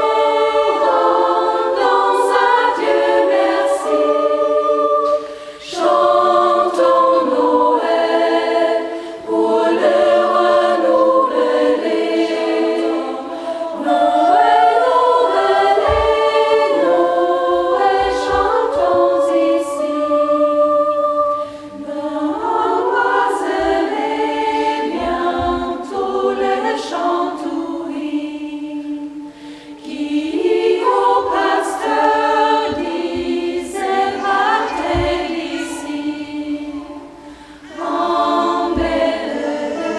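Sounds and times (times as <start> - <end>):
choir singing unaccompanied: 0.0 - 39.9.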